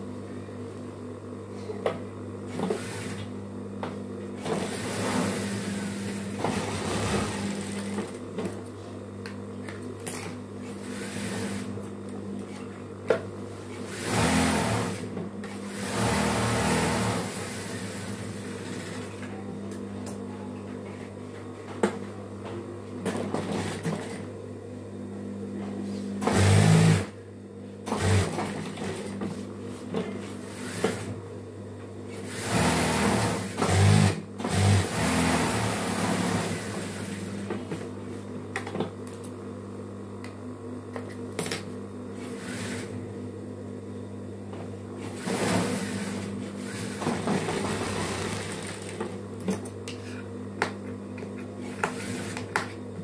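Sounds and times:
motor hum: 0:00.0 - 0:20.2
sewing machine stitching: 0:02.5 - 0:03.2, 0:04.4 - 0:08.2, 0:13.8 - 0:15.1, 0:15.7 - 0:19.1, 0:26.2 - 0:27.1, 0:27.9 - 0:29.2, 0:32.2 - 0:37.4, 0:45.1 - 0:49.2, 0:51.9 - 0:52.4.

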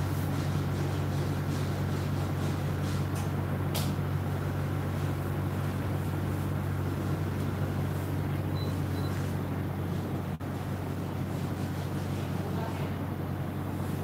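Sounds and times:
room noise: 0:00.0 - 0:14.0
steady low hum: 0:00.0 - 0:14.0.

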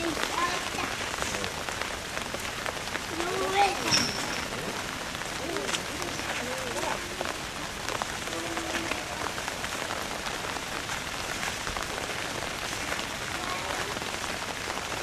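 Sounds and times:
outdoor hiss: 0:00.0 - 0:15.0.

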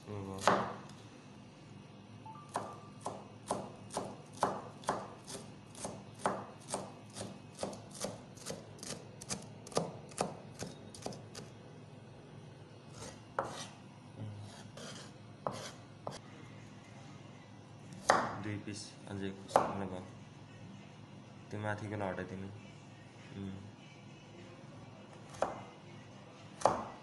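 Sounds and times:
knife chopping on cutting board: 0:00.4 - 0:00.9, 0:02.5 - 0:11.5, 0:12.9 - 0:13.8, 0:14.4 - 0:16.2, 0:18.0 - 0:18.4, 0:19.5 - 0:19.8, 0:25.3 - 0:25.6, 0:26.6 - 0:27.0.

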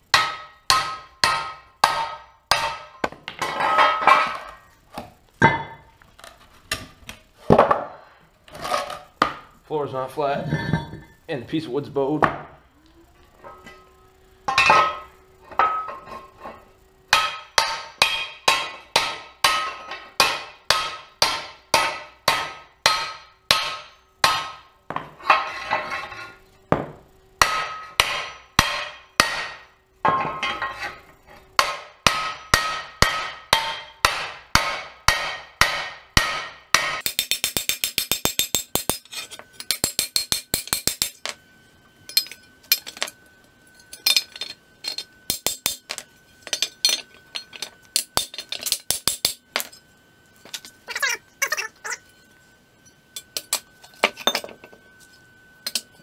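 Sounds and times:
hammer ringing on metal: 0:00.1 - 0:03.0, 0:26.8 - 0:30.5, 0:31.6 - 0:39.1.

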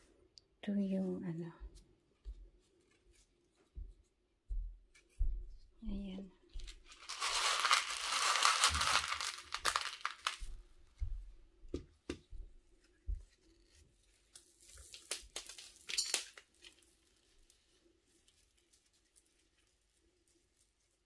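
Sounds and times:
gravel crinkling and rustling: 0:06.6 - 0:10.6.

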